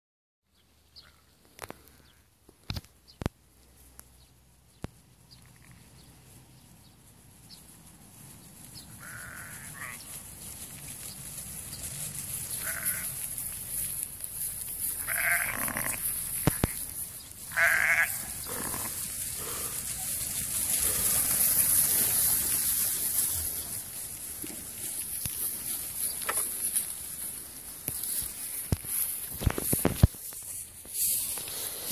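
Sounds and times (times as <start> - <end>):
sheep bleating: 9.0 - 10.1, 12.5 - 13.3, 14.9 - 16.8, 17.5 - 19.7.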